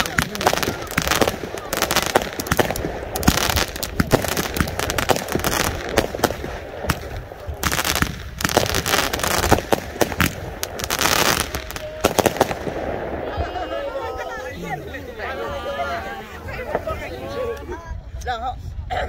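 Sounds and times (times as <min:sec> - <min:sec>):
fireworks bangs and crackling pops: 0:00.0 - 0:13.6, 0:16.5 - 0:17.2.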